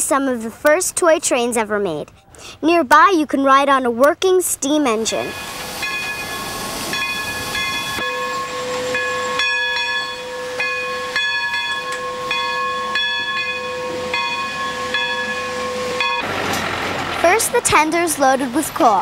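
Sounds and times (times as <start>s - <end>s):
steam locomotive whistle: 5.3s - 16.4s.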